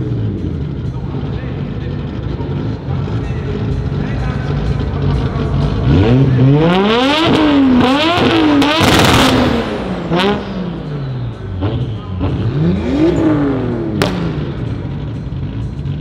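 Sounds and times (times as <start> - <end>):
car engine revving: 0.0 - 16.0
sharp crack: 14.0 - 14.7.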